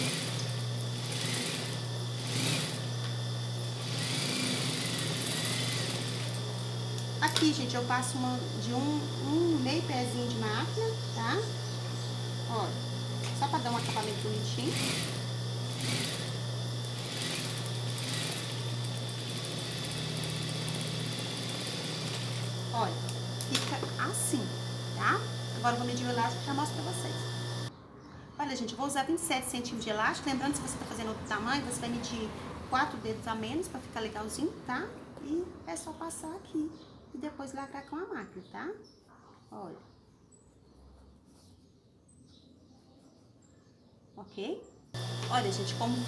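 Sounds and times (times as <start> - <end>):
sewing machine needle stitching: 0.0 - 2.9, 3.8 - 6.5, 12.5 - 23.9
sewing machine motor humming: 0.0 - 27.7, 45.0 - 46.0.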